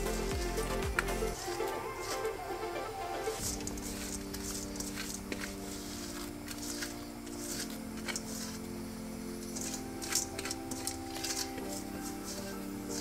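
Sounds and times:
soft background music chords: 0.0 - 13.0
crickets scraping in metal colander: 3.4 - 13.0.

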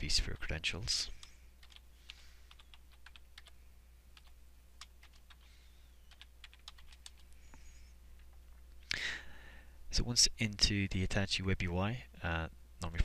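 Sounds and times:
computer keyboard keystrokes: 1.2 - 3.5, 4.2 - 5.5, 6.1 - 7.3.

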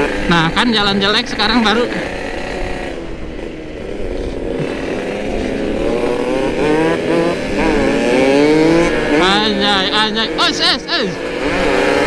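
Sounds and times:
motorcycle engine revving: 0.0 - 12.0
wind rumbling on microphone: 1.9 - 9.3.

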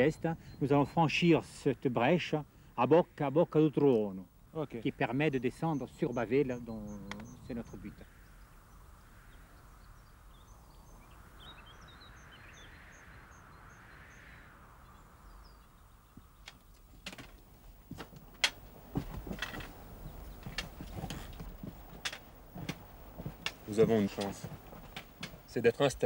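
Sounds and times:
soft hiss of open air: 0.0 - 26.0
small bird chirps: 5.6 - 16.8
footsteps on rock and gravel: 16.9 - 25.5.

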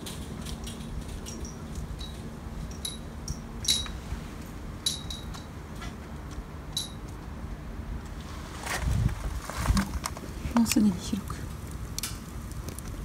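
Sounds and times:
light metallic clinks: 0.5 - 4.0, 4.8 - 5.5, 6.7 - 7.0.

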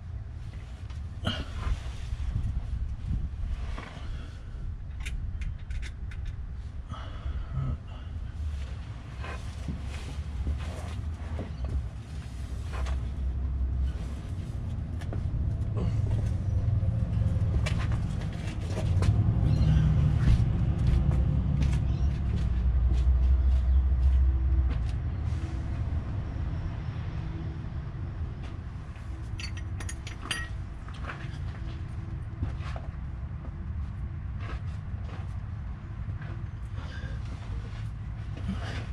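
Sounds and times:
low vehicle rumble: 0.0 - 38.9
sharp metallic clinks: 29.3 - 30.6.

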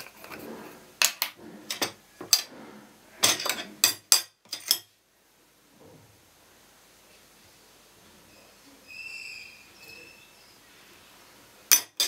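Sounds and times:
ladle and glass bottle clinking: 11.7 - 12.0.

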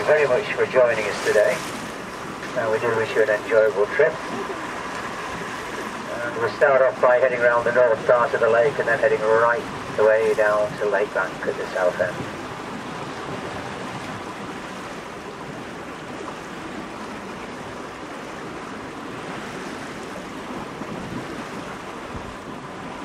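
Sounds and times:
water rushing along boat hull: 0.0 - 23.0
wind on microphone: 11.4 - 23.0.

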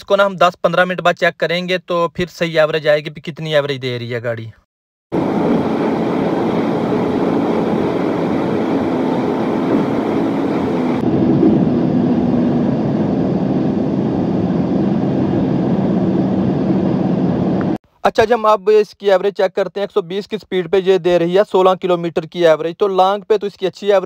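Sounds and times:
car driving at speed: 5.2 - 17.8.

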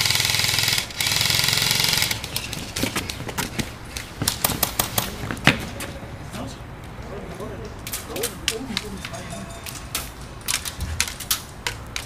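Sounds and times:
airsoft rifle rattling bursts: 0.0 - 3.2.

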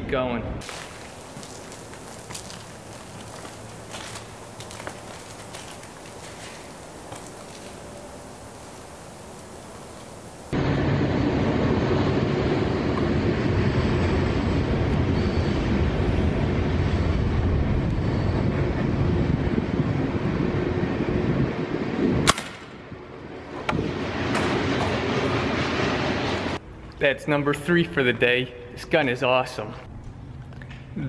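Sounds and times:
air rifle shot: 22.3 - 22.7.

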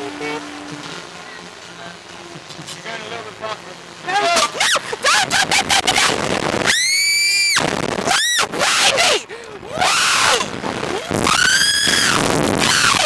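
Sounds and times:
lower cries and yells: 4.1 - 10.5, 11.1 - 13.0
young women screaming: 5.9 - 10.5, 11.2 - 13.0.

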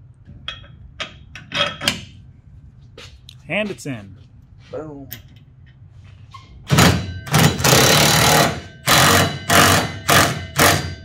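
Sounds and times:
impact wrench running in bursts: 6.7 - 11.0.

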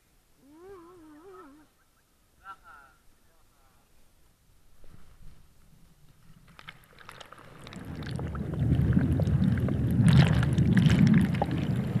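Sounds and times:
bubbly crackles: 6.1 - 12.0
hot tub jets churning water: 7.0 - 12.0.

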